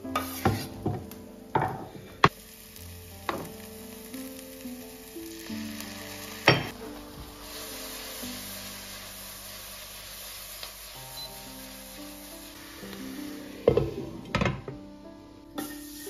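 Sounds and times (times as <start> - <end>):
mushrooms sizzling in a frying pan: 0.0 - 16.0
soft background music: 0.0 - 16.0.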